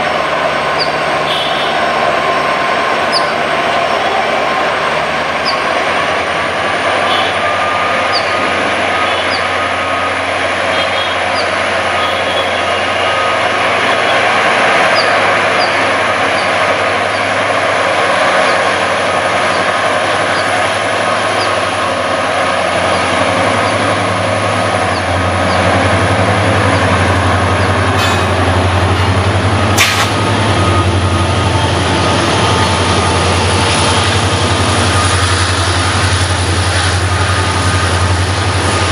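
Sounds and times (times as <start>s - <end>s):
diesel locomotive engine drone: 0.0s - 38.9s
sharp clack: 29.8s - 30.2s.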